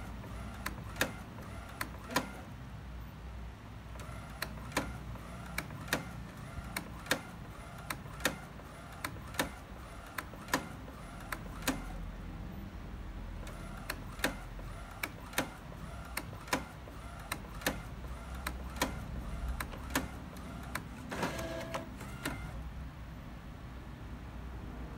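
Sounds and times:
printer clicks feeding paper: 0.0s - 2.5s, 4.0s - 12.0s, 13.4s - 22.6s
printer humming: 0.0s - 2.6s, 3.9s - 12.2s, 13.3s - 22.8s
printer whirring: 0.0s - 2.6s, 3.8s - 12.2s, 13.2s - 22.7s.

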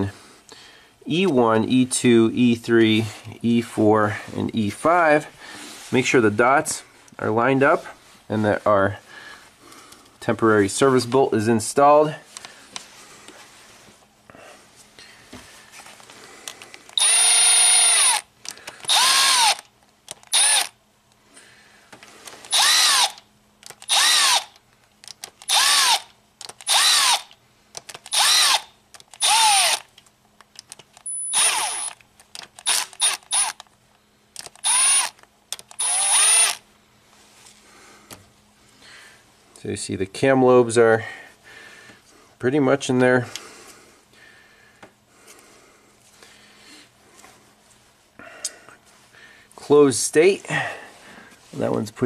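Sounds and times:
cordless ratchet whirring: 16.4s - 20.8s, 22.3s - 30.0s, 30.6s - 33.7s, 34.4s - 36.6s.

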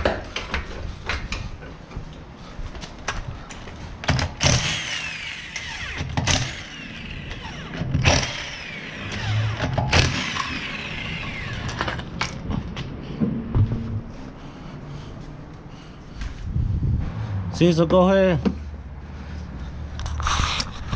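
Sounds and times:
power tool bursts: 4.1s - 12.0s.

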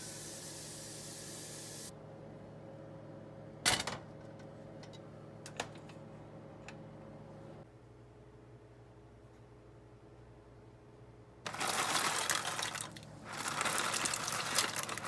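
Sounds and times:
steady hiss: 0.0s - 1.9s
low steady hum: 1.8s - 15.0s.

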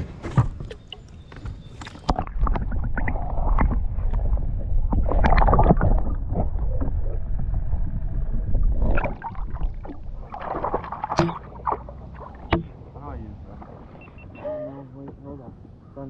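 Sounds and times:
low rumble: 2.2s - 14.1s.

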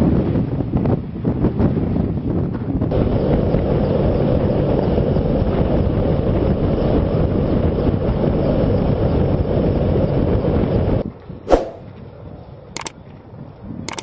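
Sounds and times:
helicopter rotor and engine rumble: 2.6s - 11.0s.

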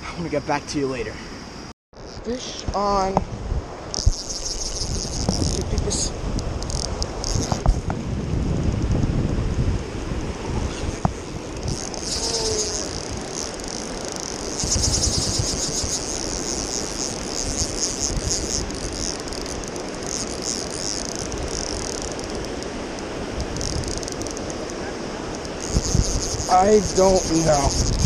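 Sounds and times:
fishing reel drag buzzing: 3.8s - 7.7s, 10.6s - 28.0s.

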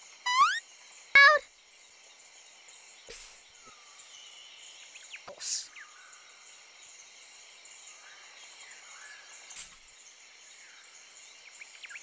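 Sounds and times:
birds chirping: 0.0s - 0.6s, 1.2s - 1.4s
insects trilling: 0.0s - 12.0s.

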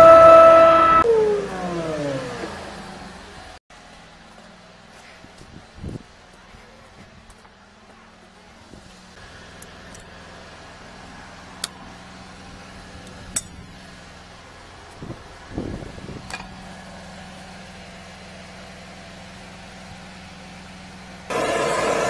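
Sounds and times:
water jetter rushing: 21.3s - 22.0s.

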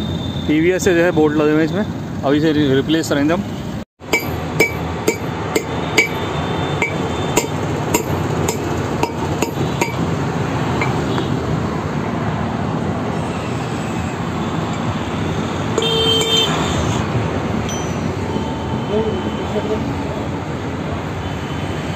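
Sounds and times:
steady background noise: 0.0s - 21.9s
hammer knocking on metal: 4.1s - 10.1s, 10.8s - 11.1s.

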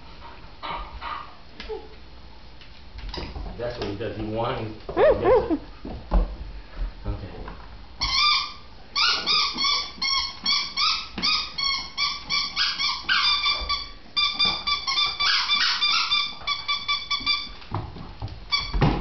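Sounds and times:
dog whining: 4.9s - 5.7s, 8.0s - 17.6s.

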